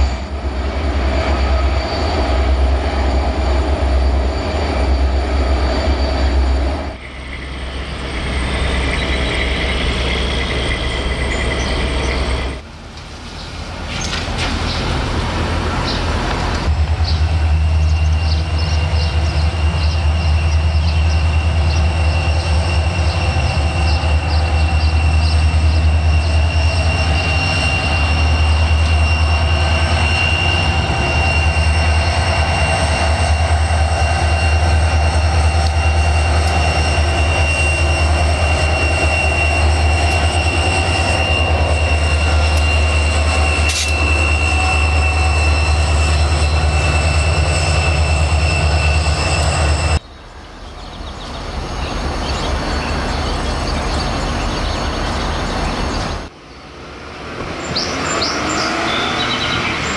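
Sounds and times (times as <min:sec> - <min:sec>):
locomotive engine rumble: 0:00.0 - 0:59.9.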